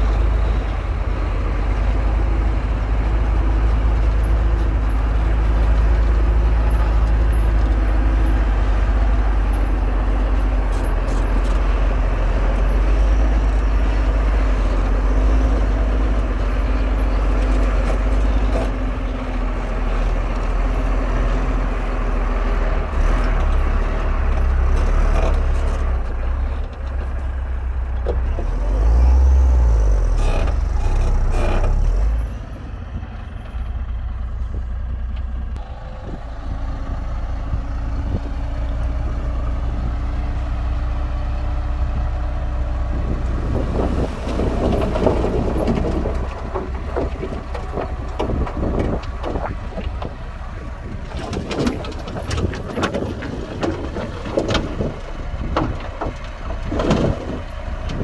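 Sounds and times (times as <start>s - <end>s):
heavy diesel machinery running: 0.0s - 58.0s
metallic clanks and rattles: 43.5s - 58.0s.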